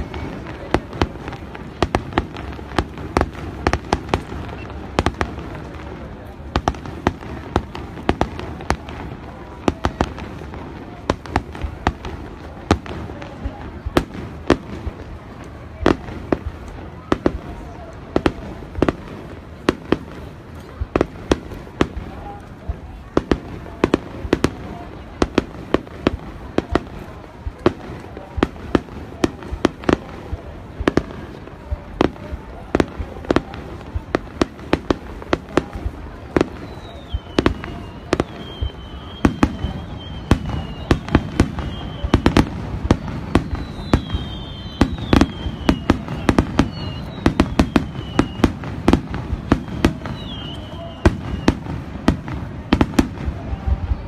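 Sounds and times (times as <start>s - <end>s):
fireworks bangs and crackles: 0.0s - 54.0s
falling firework whistles: 36.3s - 54.0s.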